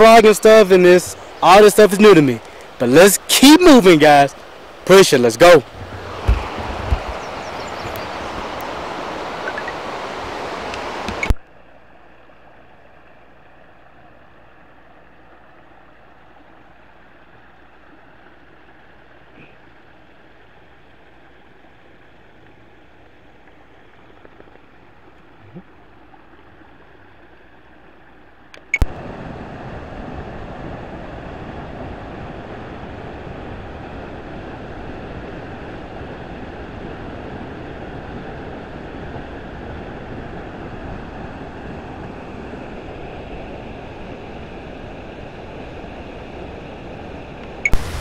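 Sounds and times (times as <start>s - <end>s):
waterfall rushing: 0.0s - 11.3s, 47.6s - 48.0s.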